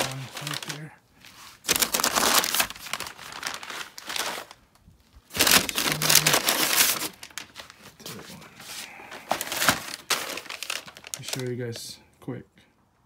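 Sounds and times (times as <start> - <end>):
packing paper crumpling: 0.0 - 11.8.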